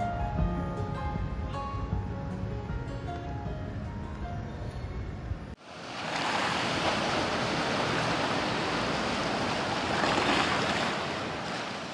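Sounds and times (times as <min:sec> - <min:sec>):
background music: 0:00.0 - 0:05.2
ocean waves breaking on shore: 0:05.6 - 0:11.9.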